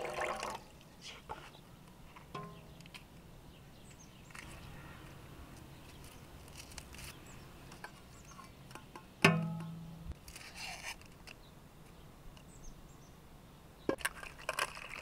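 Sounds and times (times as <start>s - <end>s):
metal clank ringing: 2.4s - 2.8s, 9.3s - 9.9s.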